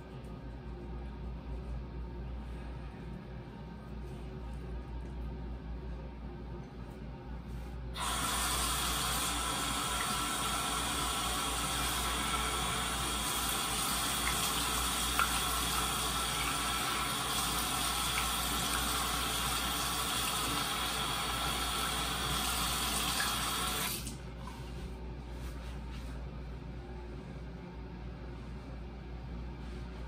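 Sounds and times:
faucet running into sink: 8.0s - 24.2s.

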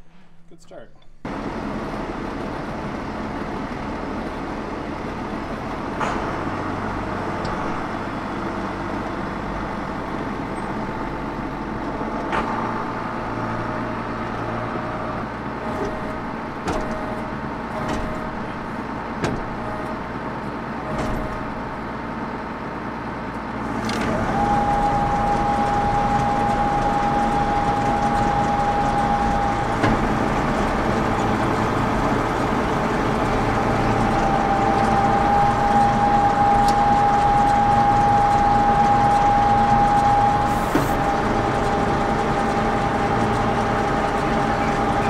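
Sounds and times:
tractor engine running: 1.1s - 45.0s
steady high whine: 23.5s - 45.0s.

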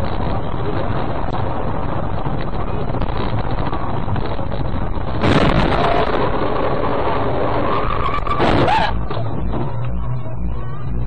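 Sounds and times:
car engine and road rumble: 0.0s - 11.0s
wind buffeting microphone: 0.0s - 11.0s.

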